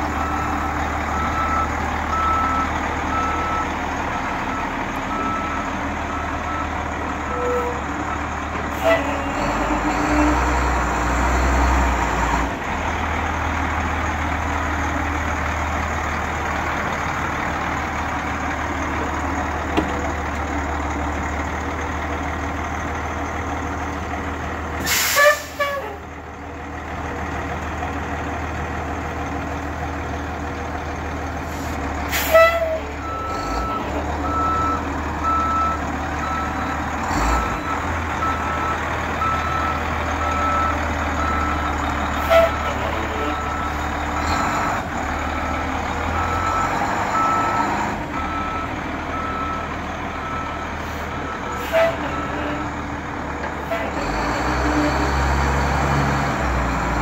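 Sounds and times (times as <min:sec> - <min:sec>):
diesel truck engine idling: 0:00.0 - 0:09.8, 0:10.7 - 0:57.0
air brake hisses: 0:24.8 - 0:25.7.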